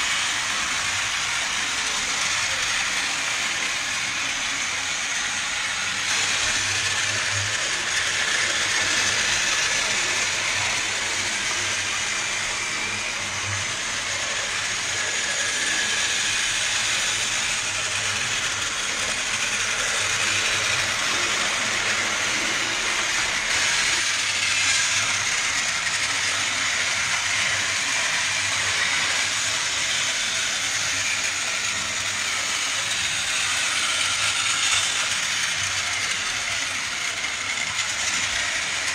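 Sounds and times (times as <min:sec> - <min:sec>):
plastic wheels on track: 0:00.0 - 0:38.9
toy train motors whirring: 0:00.0 - 0:38.9.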